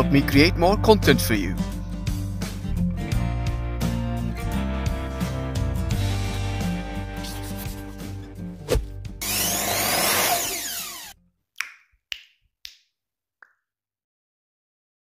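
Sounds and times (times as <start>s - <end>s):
blues-rock guitar music: 1.2s - 9.2s
power saw sound effect: 9.2s - 11.1s.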